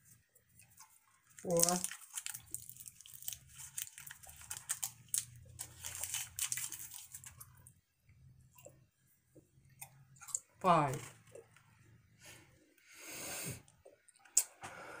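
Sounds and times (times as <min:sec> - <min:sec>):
wet chewing and mouth clicks: 0:00.0 - 0:07.7
paper wrappers crinkling and tearing: 0:00.8 - 0:07.7.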